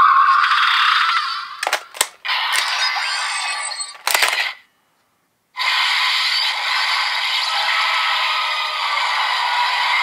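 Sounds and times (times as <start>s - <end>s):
electronic toy sound effects: 0.3s - 4.6s
sharp mechanical clicks: 1.6s - 2.8s, 4.0s - 4.6s.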